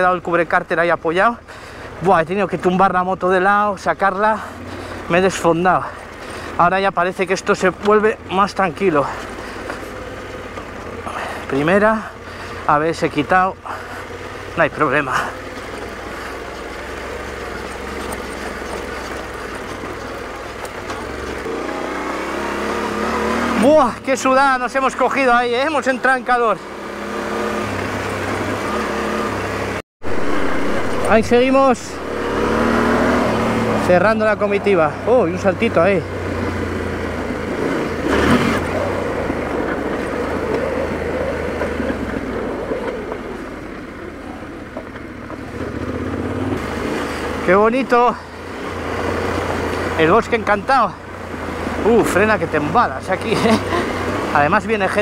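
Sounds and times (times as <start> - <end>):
motorcycle engine running: 1.4 - 55.0.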